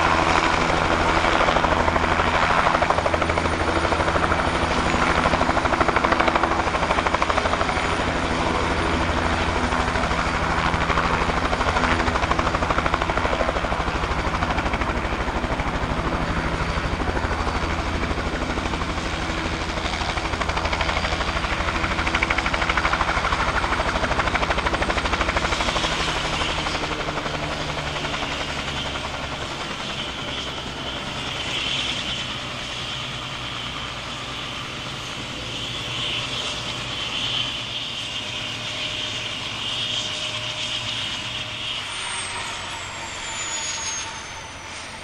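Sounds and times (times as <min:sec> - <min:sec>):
helicopter turbine whine: 0:00.0 - 0:45.0
whine gliding down in pitch: 0:39.4 - 0:45.0.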